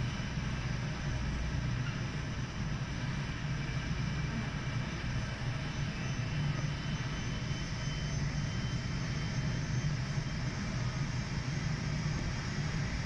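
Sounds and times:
aircraft engines droning: 0.0s - 13.0s
faint high whine: 0.0s - 13.0s.

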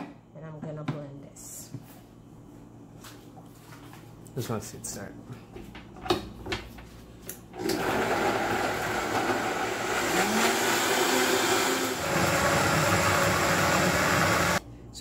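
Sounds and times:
blender motor chopping vegetables: 7.6s - 14.6s.

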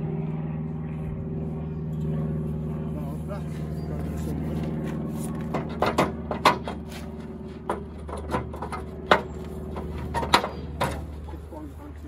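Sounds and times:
low motor hum: 0.0s - 12.0s
metal frames clanking: 7.6s - 11.2s.

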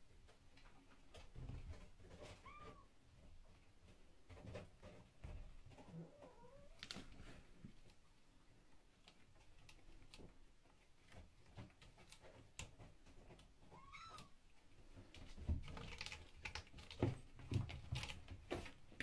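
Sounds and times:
kitten meowing faintly: 13.7s - 14.3s.

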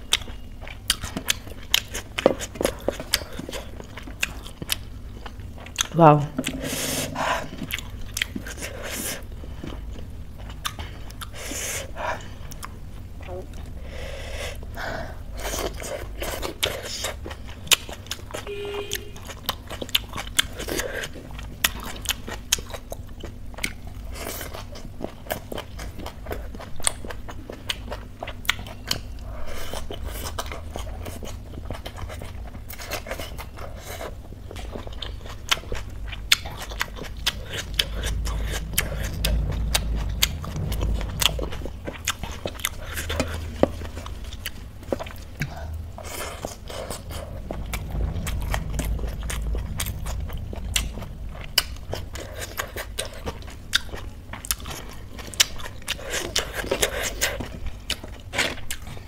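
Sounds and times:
person chewing and crunching: 0.0s - 59.0s.

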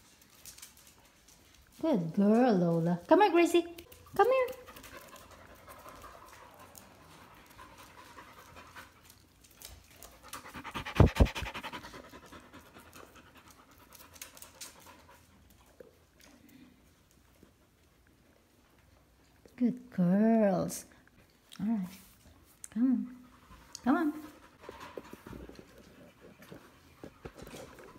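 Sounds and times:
dog panting: 3.8s - 19.2s, 23.1s - 27.9s.

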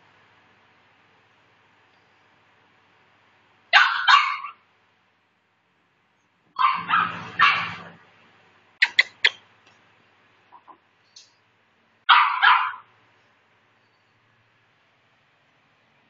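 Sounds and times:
puppy yapping: 3.8s - 4.6s, 6.6s - 8.0s, 12.1s - 12.9s.

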